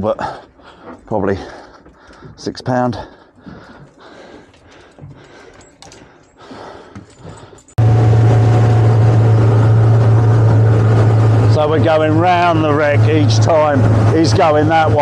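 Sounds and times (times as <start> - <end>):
outboard motor drone: 7.8 - 15.0
rushing wake and wind: 7.8 - 15.0.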